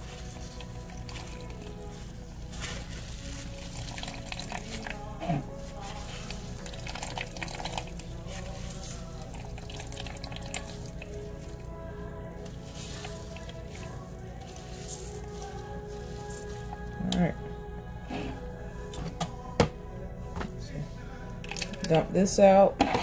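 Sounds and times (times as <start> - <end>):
juice dripping into plastic bowl: 0.0 - 2.7, 3.3 - 16.0, 21.3 - 22.0
background music: 0.0 - 23.0.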